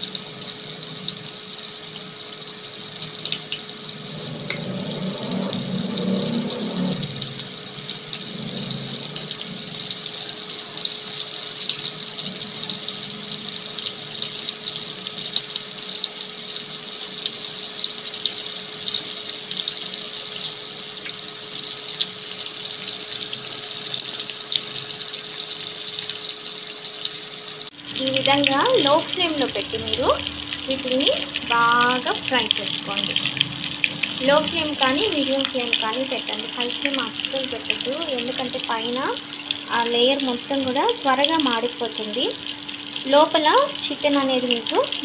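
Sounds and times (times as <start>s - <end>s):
chicken deep-frying in oil: 0.0s - 45.0s.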